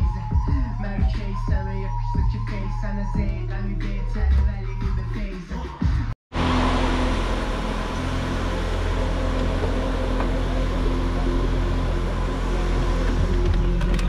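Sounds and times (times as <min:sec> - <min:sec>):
car road and engine rumble: 0:06.3 - 0:14.0.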